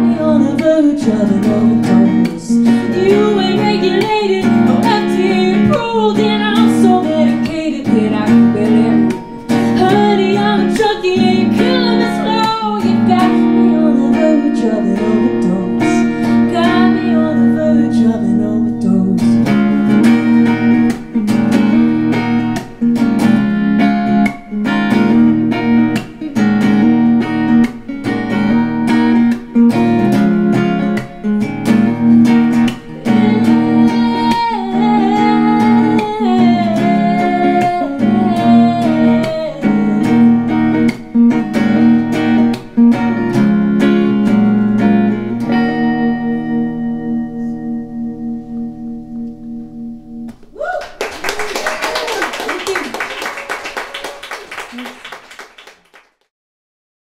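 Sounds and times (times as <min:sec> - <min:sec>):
woman singing: 0:00.0 - 0:20.0, 0:32.9 - 0:40.8
strummed guitar: 0:00.0 - 0:50.5.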